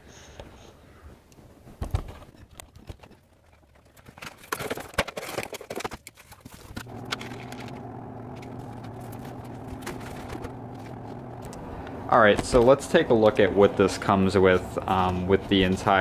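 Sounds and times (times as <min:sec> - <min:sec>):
steady low hum: 0:06.8 - 0:15.4.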